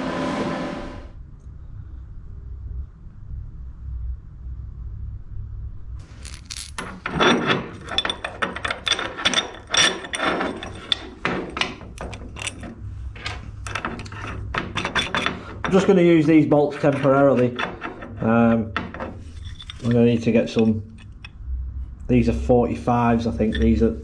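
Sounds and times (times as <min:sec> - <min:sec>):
low steady hum: 0:00.0 - 0:24.0
metal parts clinking and rattling: 0:06.0 - 0:21.4, 0:23.2 - 0:24.0.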